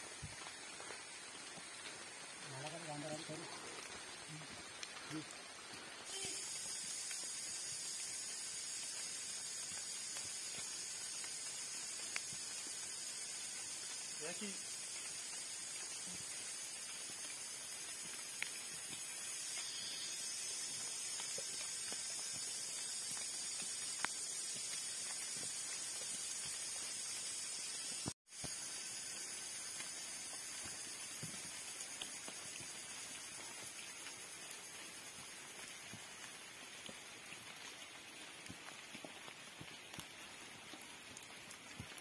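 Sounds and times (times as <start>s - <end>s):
heavy rain falling: 0.0s - 28.4s
faint ticks: 6.1s - 28.6s.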